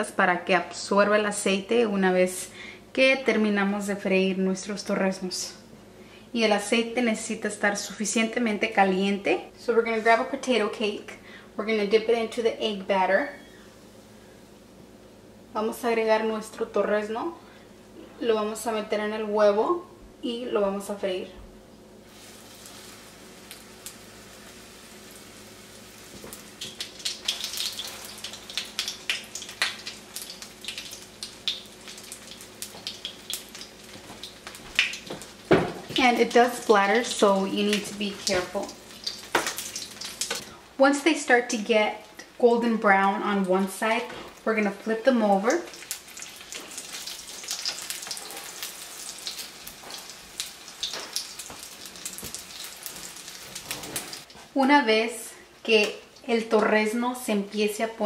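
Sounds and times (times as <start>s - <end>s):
food frying in hot oil: 22.0s - 40.6s, 41.4s - 54.4s.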